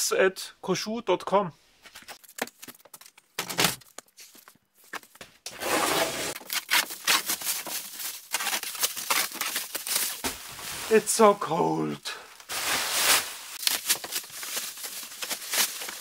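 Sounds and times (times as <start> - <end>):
plastic stretch wrap crinkling: 6.3 - 11.4, 12.3 - 16.0.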